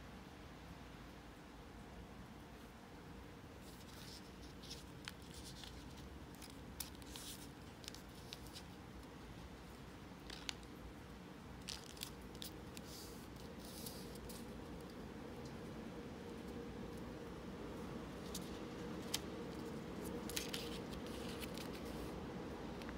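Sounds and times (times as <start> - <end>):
paper folding rustles and crackles: 3.6 - 10.8, 11.6 - 17.2, 17.8 - 22.9.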